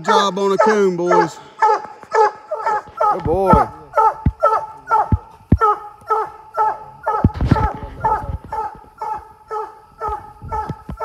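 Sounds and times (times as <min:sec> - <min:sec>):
hound barking: 0:00.0 - 0:11.0
dull low thumps: 0:03.2 - 0:05.7.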